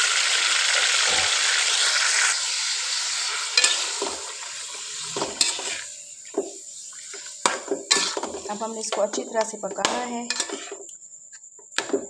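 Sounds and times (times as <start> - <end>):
chicken sizzling in hot oil: 0.0 - 9.2
spoon scraping a pan: 3.5 - 11.9.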